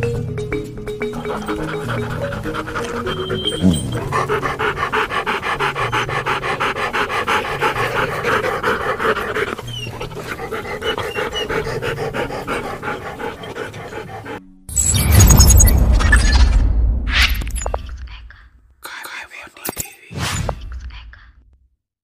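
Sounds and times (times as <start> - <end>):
dog panting: 1.0 - 14.4.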